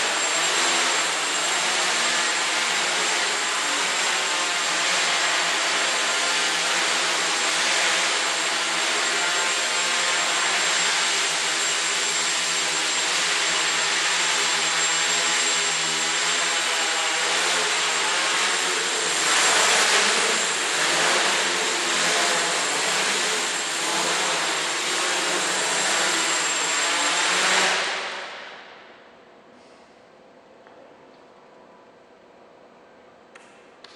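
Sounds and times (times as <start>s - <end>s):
drone rotors buzzing with whine: 0.0s - 29.0s.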